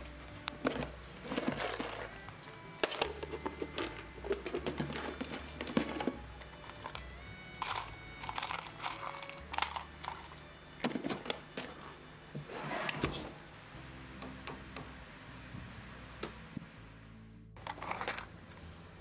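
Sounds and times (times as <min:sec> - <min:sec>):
metal hardware clinking in plastic tub: 0:00.6 - 0:07.0, 0:07.6 - 0:10.3.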